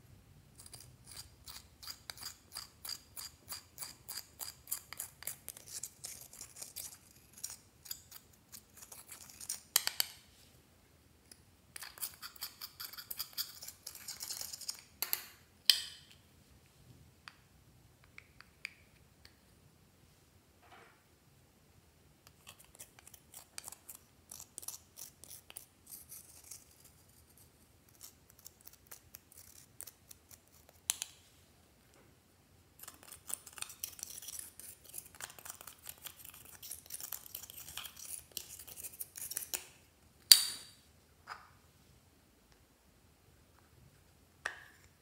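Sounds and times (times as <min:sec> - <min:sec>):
metal tool scraping eyeshadow: 0:00.6 - 0:09.7, 0:11.8 - 0:15.3, 0:32.8 - 0:39.6.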